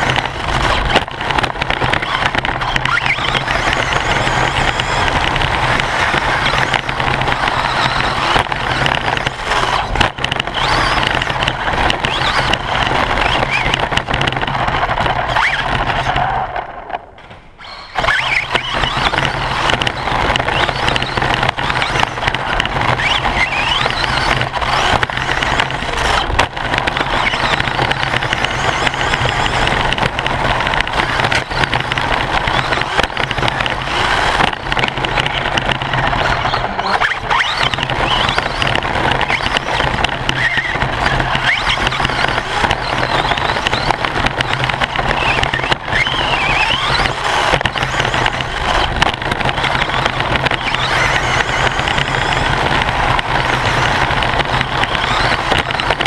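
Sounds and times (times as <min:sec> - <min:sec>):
drivetrain whine: 0:00.0 - 0:56.0
tyres and shell rattling over dirt: 0:00.0 - 0:56.0.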